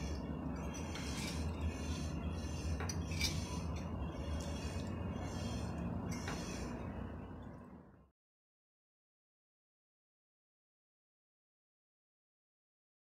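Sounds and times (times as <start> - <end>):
cutlery scraping on ceramic plate: 0.0 - 6.8
steady low hum: 0.0 - 8.1.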